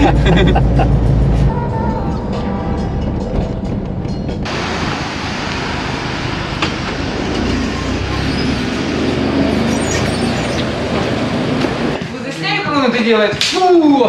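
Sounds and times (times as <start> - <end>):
car engine rumble: 0.0 - 12.1
road and wind noise: 0.0 - 14.0.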